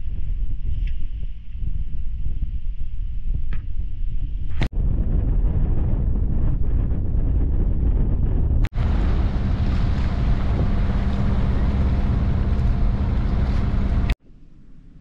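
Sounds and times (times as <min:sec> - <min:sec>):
wind buffeting the microphone: 0:00.0 - 0:14.2
boat engine humming: 0:08.7 - 0:14.2.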